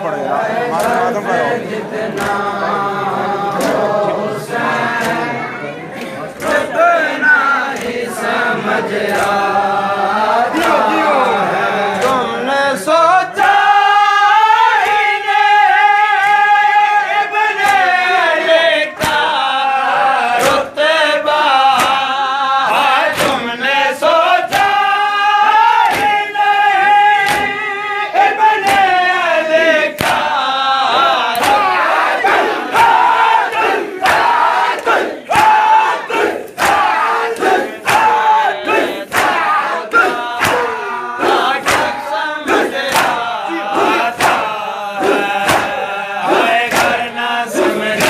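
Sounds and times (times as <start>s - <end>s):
men chanting in chorus: 0.0s - 48.0s
rhythmic chest-beating slaps: 0.0s - 48.0s.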